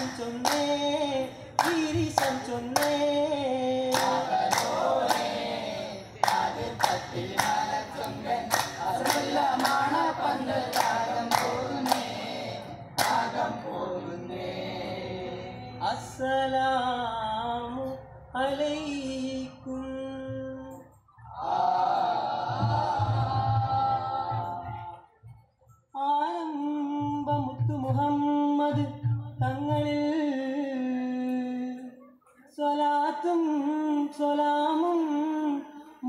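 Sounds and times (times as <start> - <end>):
group hand claps: 0.0 - 13.6
men singing in unison: 0.0 - 25.0.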